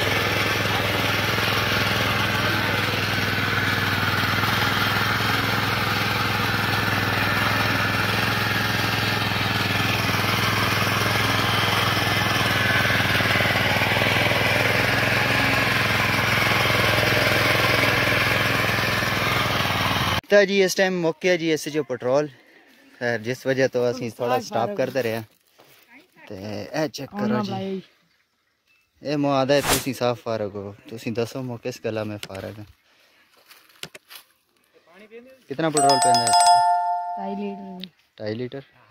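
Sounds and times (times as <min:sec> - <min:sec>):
small petrol engine running: 0:00.0 - 0:20.2, 0:35.7 - 0:37.8
tiller tines digging soil: 0:00.0 - 0:20.2.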